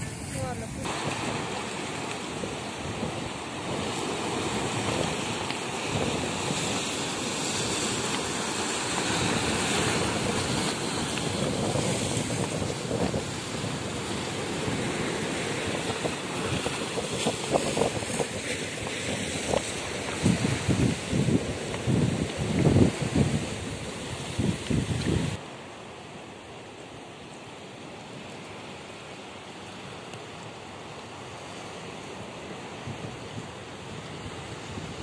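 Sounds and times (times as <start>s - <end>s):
wind buffeting microphone: 0.0s - 25.4s
sea waves washing onto shore: 0.0s - 35.0s.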